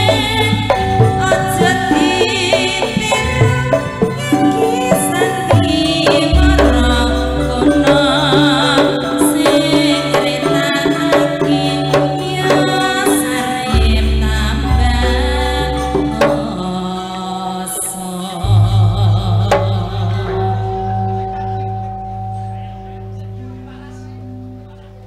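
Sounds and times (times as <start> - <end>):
woman singing: 0.0 - 21.4
hand drum strokes: 0.0 - 23.6
metallophone tones: 0.0 - 25.0
deep low held note: 18.4 - 25.0.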